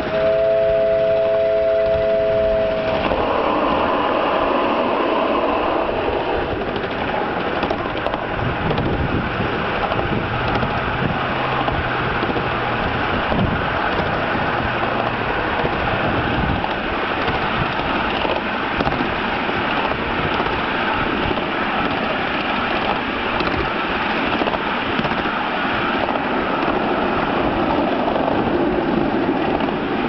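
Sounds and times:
steam whistle chord: 0:00.0 - 0:05.6
train running on track: 0:00.0 - 0:30.0.

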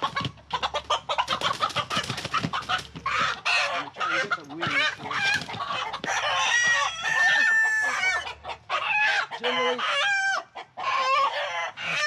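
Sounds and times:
chickens squawking and clucking: 0:00.0 - 0:12.0
rooster crowing: 0:06.0 - 0:08.3.

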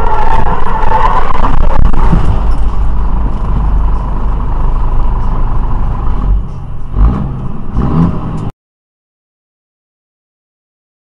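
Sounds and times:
diesel engine and road rumble: 0:00.0 - 0:08.6.

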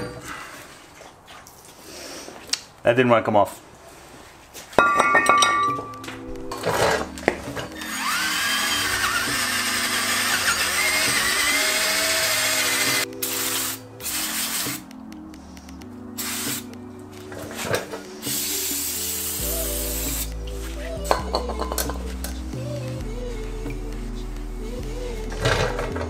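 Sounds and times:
background music: 0:04.8 - 0:26.0
aerosol spray can hissing: 0:12.5 - 0:14.9, 0:16.2 - 0:16.7, 0:18.2 - 0:20.4.

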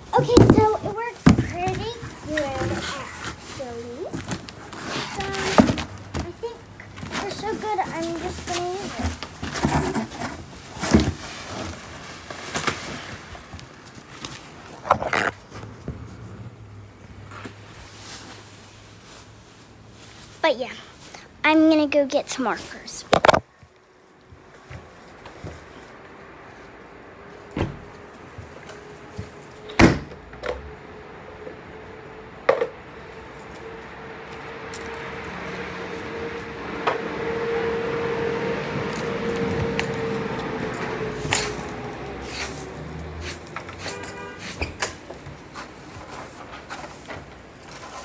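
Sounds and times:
knocks and thumps: 0:00.2 - 0:02.8.

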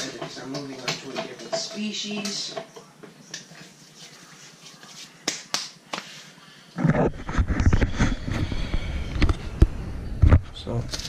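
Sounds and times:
camera rustling and bumping: 0:06.8 - 0:08.5.

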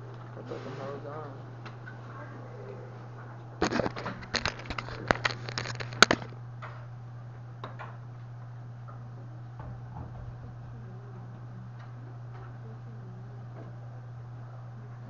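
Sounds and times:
steady low hum: 0:00.0 - 0:15.0
camera handling noise: 0:03.6 - 0:06.3.

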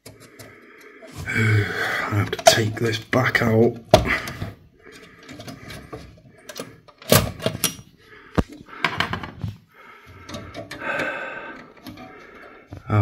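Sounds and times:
clicks and rattles of metal brackets: 0:05.0 - 0:07.9.

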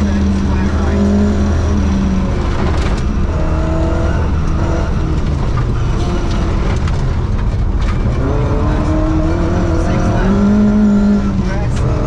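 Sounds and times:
rally car engine running hard: 0:00.0 - 0:12.0.

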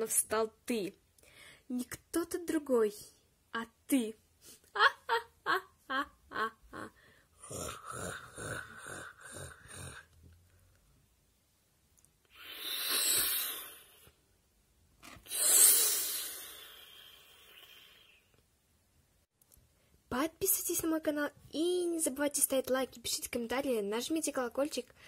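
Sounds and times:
person making breathy pulses: 0:06.8 - 0:10.7, 0:12.2 - 0:14.2, 0:15.2 - 0:18.4.

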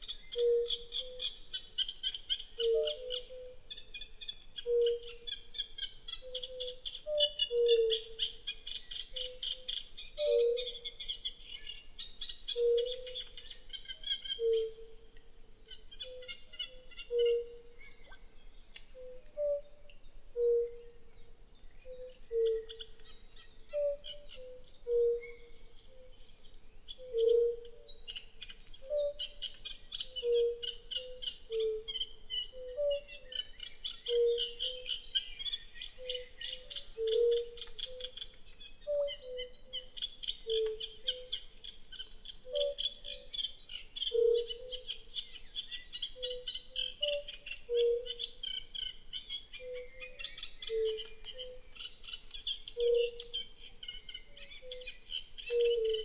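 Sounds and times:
low mellow animal hoots: 0:36.0 - 0:41.4, 0:49.6 - 0:51.6, 0:55.5 - 0:56.0.

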